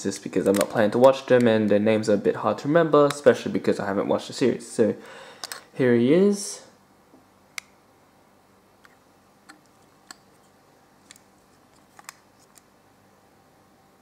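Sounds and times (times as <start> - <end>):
faint room hiss: 0.0 - 14.0.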